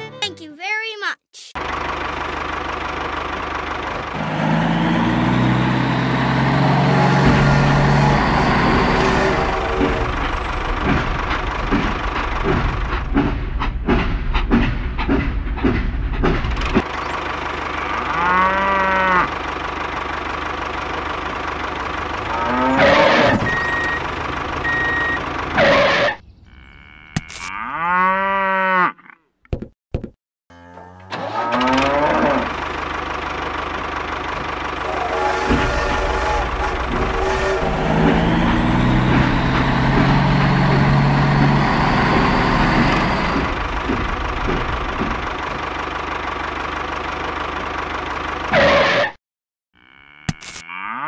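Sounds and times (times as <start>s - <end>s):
train running on rails: 1.6s - 17.9s, 32.6s - 48.5s
cow mooing: 17.8s - 19.4s, 22.2s - 23.4s, 26.5s - 29.3s, 30.5s - 32.6s, 49.8s - 51.0s.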